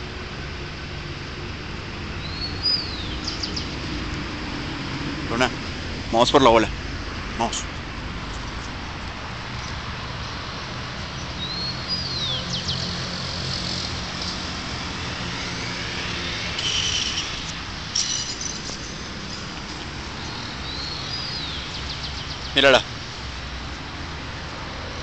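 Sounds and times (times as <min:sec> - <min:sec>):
buzzy high chirps: 0:14.2 - 0:21.8.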